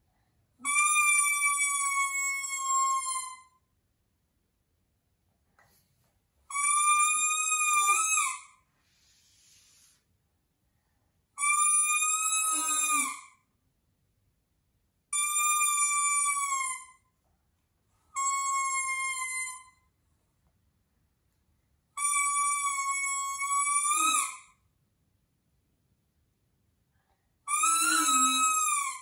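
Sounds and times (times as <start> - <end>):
toy trumpet toots: 0.6 - 3.4, 6.5 - 8.5, 11.4 - 13.3, 18.2 - 19.7, 22.0 - 24.5, 27.5 - 29.0.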